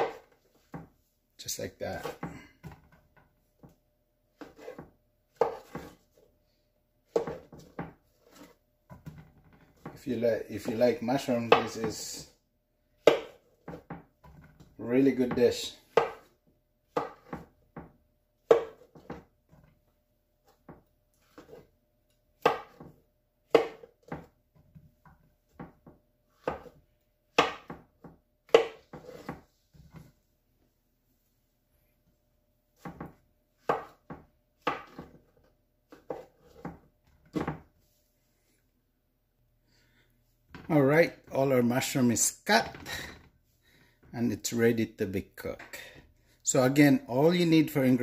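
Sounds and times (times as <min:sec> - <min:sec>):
knife chopping on plastic board: 0:00.0 - 0:00.9, 0:04.4 - 0:06.1, 0:07.1 - 0:10.0, 0:10.6 - 0:12.3, 0:13.0 - 0:19.3, 0:20.4 - 0:21.7, 0:22.4 - 0:24.7, 0:25.5 - 0:29.4, 0:32.8 - 0:37.7.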